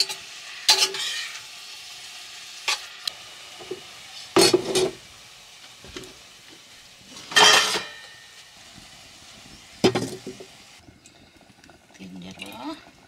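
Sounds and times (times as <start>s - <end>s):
metal ladle scraping a pot: 0.0s - 1.5s
faint cooking sizzle: 0.0s - 13.0s.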